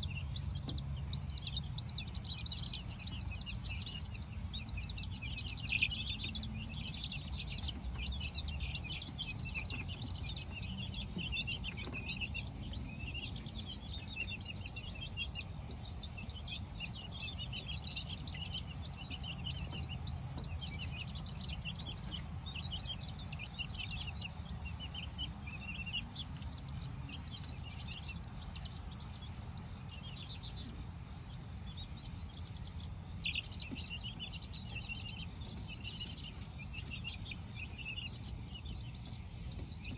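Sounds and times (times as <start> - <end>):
chicks peeping: 0.0 - 39.9.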